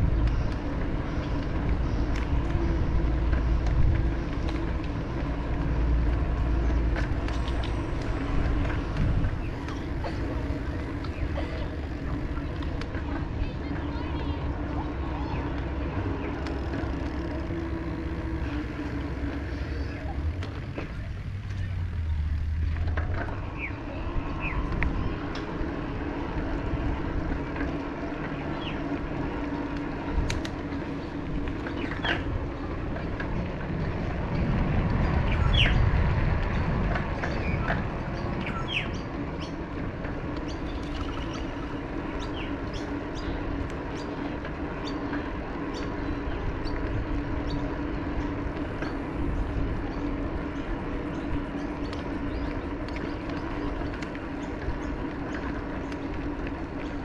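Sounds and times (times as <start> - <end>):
birds chirping: 0.0 - 57.0
low hum and rumble: 0.0 - 57.0.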